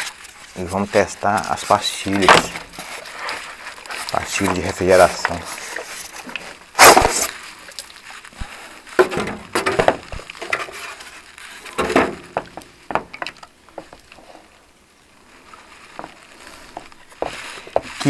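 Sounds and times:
plastic knocks clicks and scrapes: 9.0 - 10.9.

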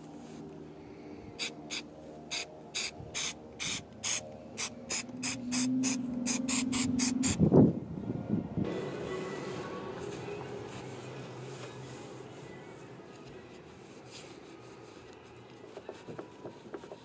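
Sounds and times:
low steady hum: 0.0 - 15.6
spray can hissing spurts: 1.4 - 7.4.

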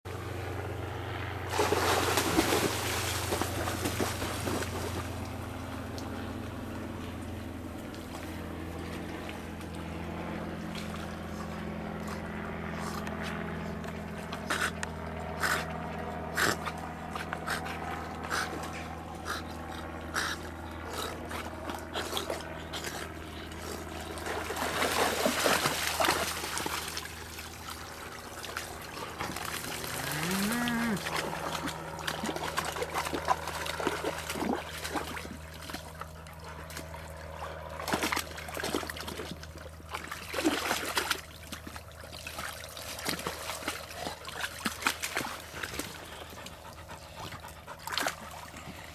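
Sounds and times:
steady low hum: 0.1 - 48.9
water sloshing and splashing: 1.5 - 6.2, 21.3 - 48.9.

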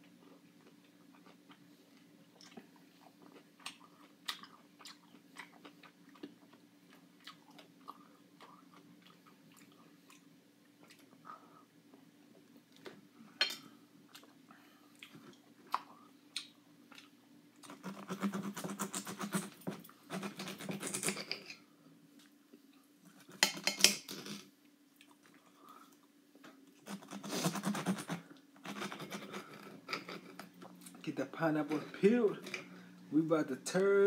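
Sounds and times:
crunchy pineapple cutting and eating: 15.0 - 21.6.

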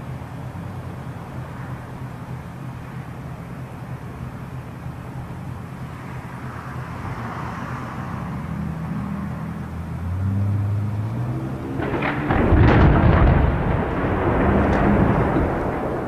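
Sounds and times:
engine humming: 0.0 - 16.0.

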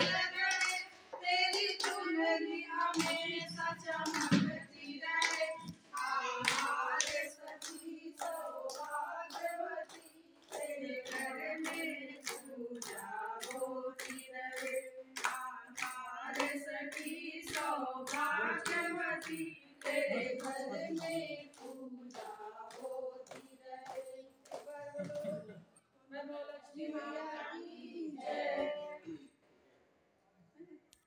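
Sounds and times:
hands clapping in rhythm: 0.0 - 25.5
women singing in unison: 0.0 - 29.3.

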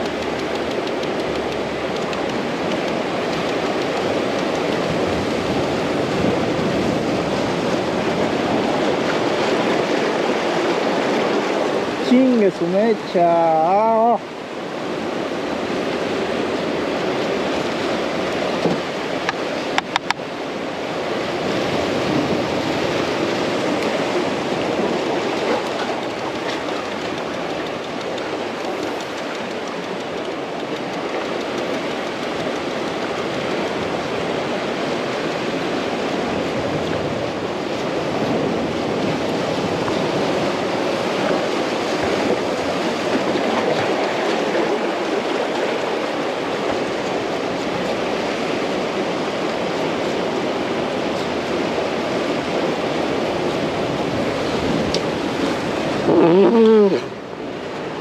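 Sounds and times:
sharp clicks: 0.0 - 4.9, 25.6 - 33.5
ocean surf washing on shore: 0.0 - 58.0.

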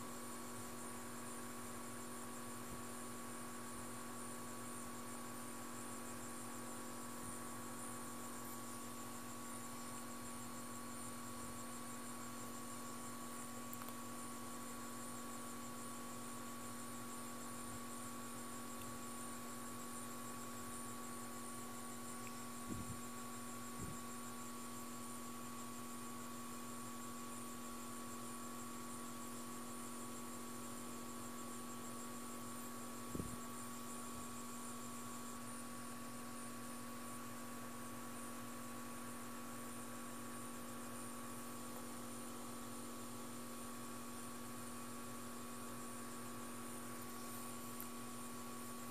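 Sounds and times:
electrical hum: 0.0 - 48.9.

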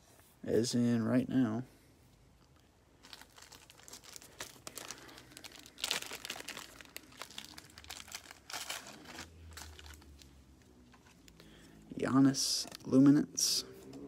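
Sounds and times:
plastic packaging crinkling: 2.9 - 11.6.

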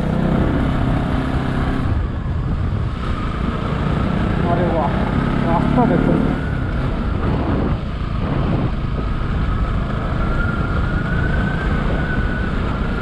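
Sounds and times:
wind on microphone: 0.0 - 5.2, 5.8 - 13.0
motorcycle engine running: 0.0 - 13.0.

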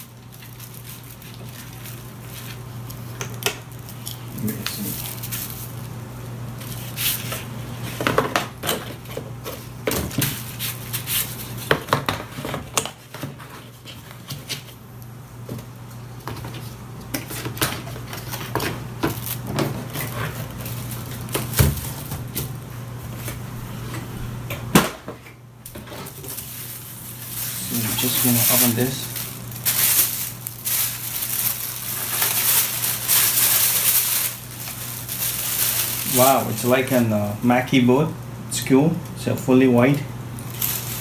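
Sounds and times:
cardboard and paper rustling: 0.0 - 3.0, 3.9 - 5.9, 16.2 - 22.5, 25.8 - 37.0, 40.4 - 41.0.

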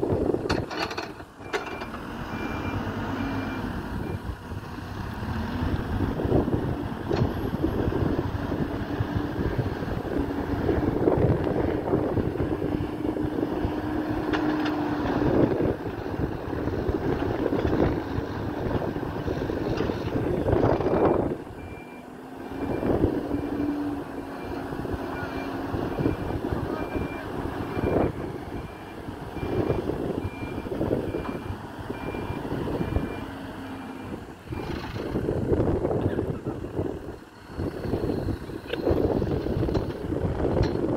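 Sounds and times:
diesel engine revving under load: 0.0 - 40.9
reversing alarm beeping: 20.8 - 23.8, 24.4 - 33.3.

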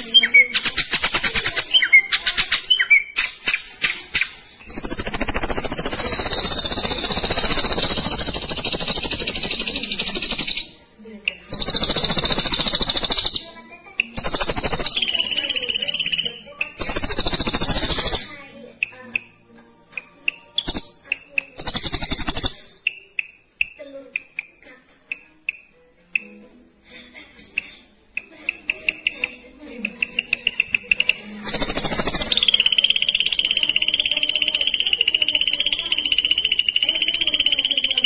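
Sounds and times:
bird clicking notes: 19.9 - 26.4, 27.6 - 38.0.

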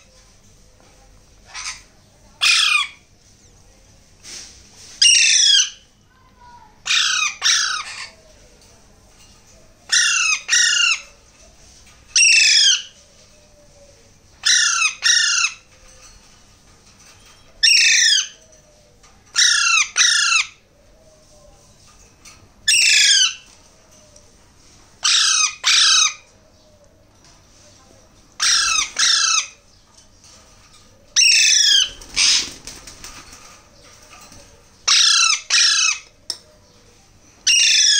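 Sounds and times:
parakeet chicks squawking: 1.5 - 3.0, 5.0 - 5.8, 6.8 - 8.2, 9.9 - 11.1, 12.2 - 13.0, 14.4 - 15.7, 17.6 - 18.4, 19.4 - 20.6, 22.7 - 23.5, 25.0 - 26.3, 28.4 - 29.6, 31.2 - 32.6, 34.8 - 36.2, 37.4 - 37.9.

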